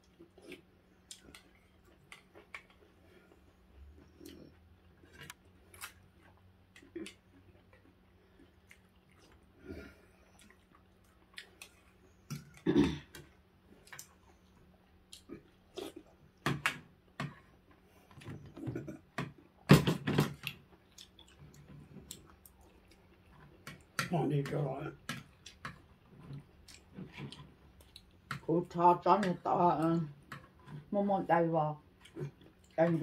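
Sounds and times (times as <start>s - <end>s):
chewing and slurping: 0.0s - 16.3s, 20.4s - 24.0s, 25.0s - 28.5s, 31.8s - 33.0s.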